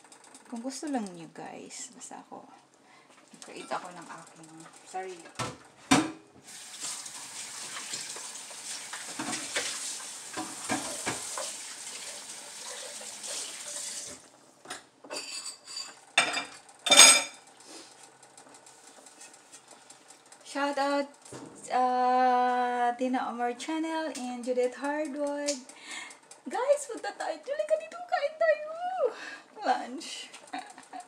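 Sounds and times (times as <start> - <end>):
clatter of dishes and cutlery: 3.4 - 3.9, 9.2 - 9.8, 10.4 - 11.5, 14.7 - 17.5.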